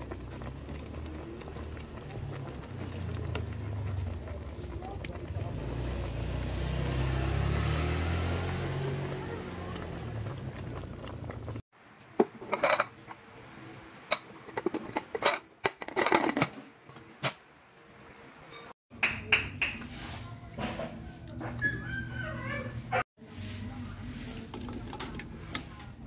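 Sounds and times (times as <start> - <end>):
low rumble with hum: 9.7 - 11.6
bones clinking in steel pot: 12.2 - 13.2, 14.1 - 16.5.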